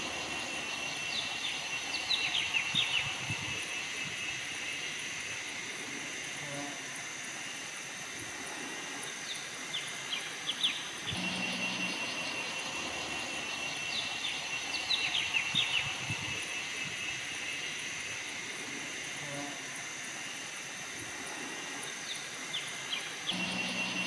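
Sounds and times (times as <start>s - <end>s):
bird chirping: 0.0s - 4.6s, 9.3s - 17.8s, 22.0s - 24.0s
insects droning: 0.0s - 24.0s.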